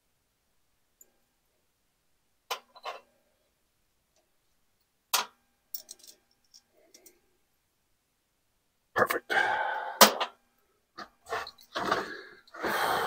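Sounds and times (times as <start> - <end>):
metal nuts and bolts clinking: 5.1 - 7.2.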